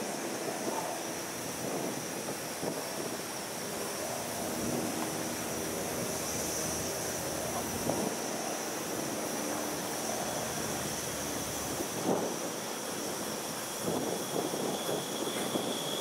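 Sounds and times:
steam locomotive hissing: 0:00.0 - 0:16.0
wind on microphone: 0:00.0 - 0:16.0.

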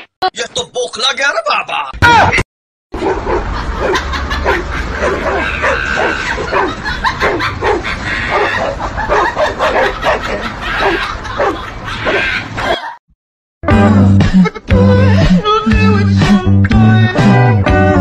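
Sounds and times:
dogs barking fast: 0:03.0 - 0:13.0.

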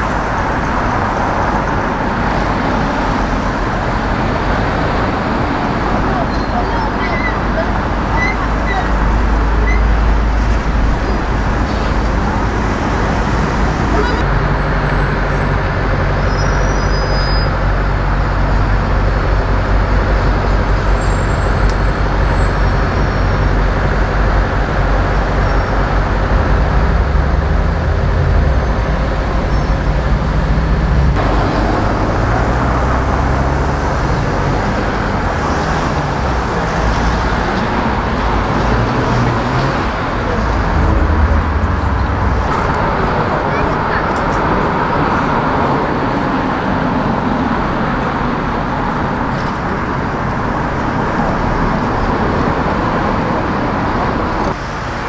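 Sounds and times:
motor vehicles passing: 0:00.0 - 0:55.0
low engine hum: 0:17.5 - 0:49.0.

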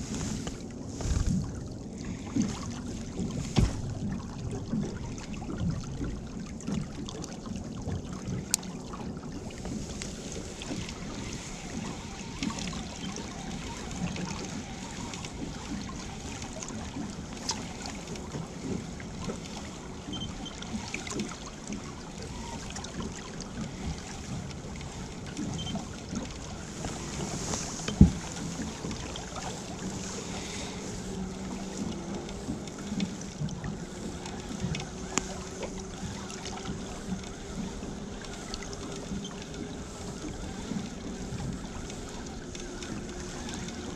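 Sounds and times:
wind on microphone: 0:00.0 - 0:06.9, 0:22.2 - 0:43.9
water sloshing against hull: 0:00.0 - 0:43.9.

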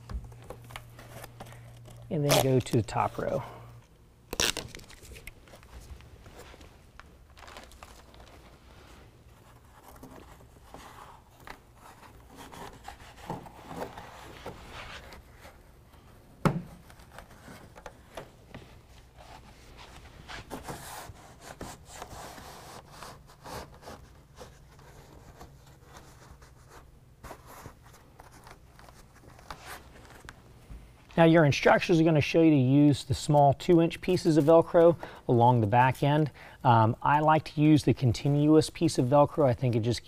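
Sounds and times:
fabric rustling and scraping: 0:04.4 - 0:16.1, 0:16.7 - 0:30.6.

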